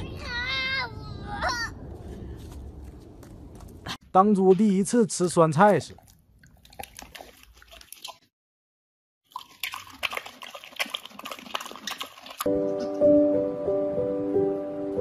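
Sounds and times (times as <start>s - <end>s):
pig chewing with wet smacking: 5.2s - 8.3s, 9.3s - 12.5s.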